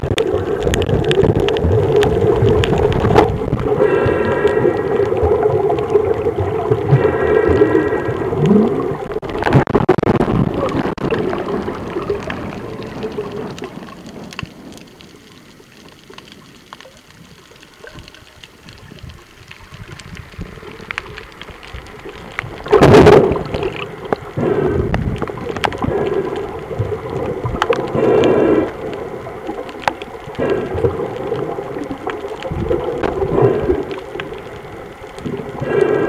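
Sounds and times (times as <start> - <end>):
underwater crackling and water: 0.0 - 36.0.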